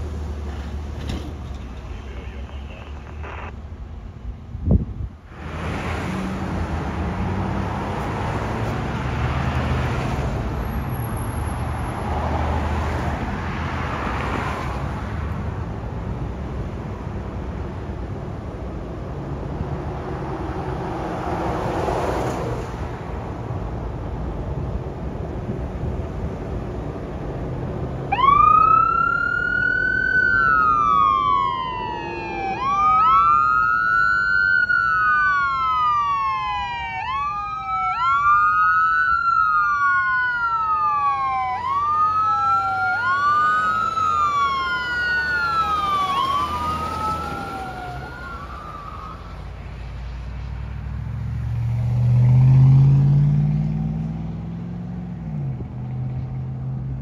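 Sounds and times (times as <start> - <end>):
road traffic noise: 0.0 - 57.0
emergency vehicle sirens wailing: 27.6 - 49.8.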